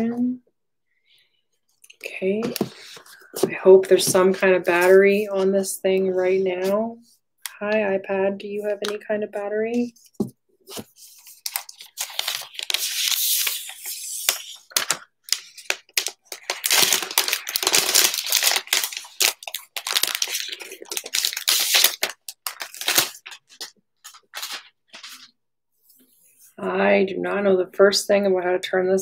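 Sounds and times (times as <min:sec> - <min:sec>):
plastic wrap crinkling: 0:11.2 - 0:25.3.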